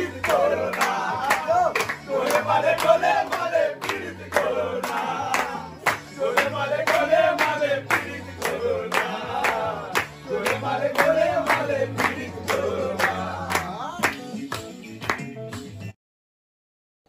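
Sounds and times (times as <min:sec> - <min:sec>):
men singing together: 0:00.0 - 0:14.0
hands clapping in time: 0:00.0 - 0:16.0.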